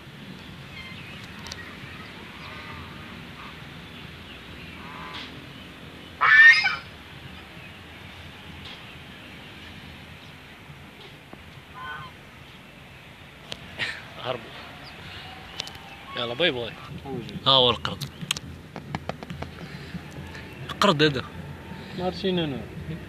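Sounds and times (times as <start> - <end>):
geese honking: 1.6 - 3.8, 4.7 - 5.4, 6.2 - 6.9, 11.7 - 12.2.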